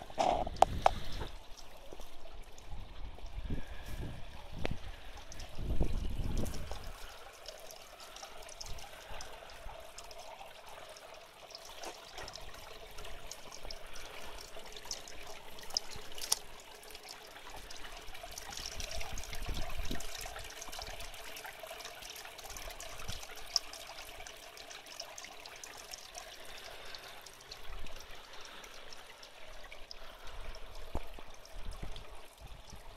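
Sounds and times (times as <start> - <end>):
water pouring into pond: 0.0 - 32.9.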